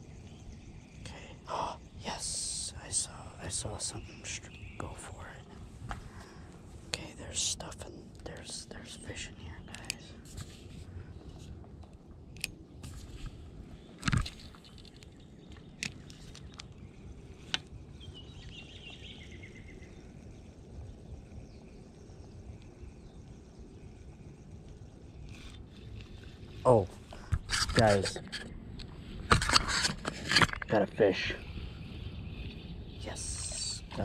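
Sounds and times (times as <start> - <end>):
steady low rumble: 0.0 - 34.0
sharp clicks: 9.7 - 10.0
bird chirping trill: 13.8 - 25.8, 30.6 - 34.0.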